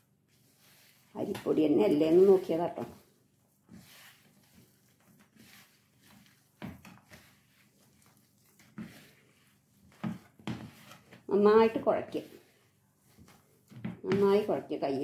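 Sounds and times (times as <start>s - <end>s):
hand squishing dough: 0.0s - 15.0s.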